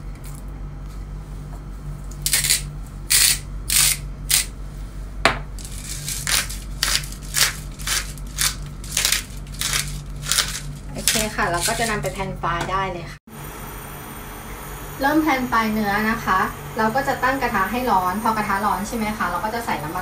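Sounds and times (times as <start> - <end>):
salt grinder crunching: 2.2 - 4.5, 5.6 - 12.2.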